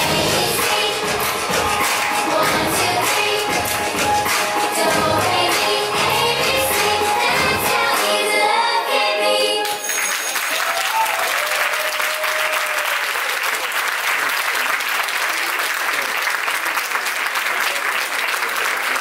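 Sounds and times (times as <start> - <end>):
audience applauding: 0.0 - 5.8, 9.6 - 19.0
recorded song: 0.0 - 10.2.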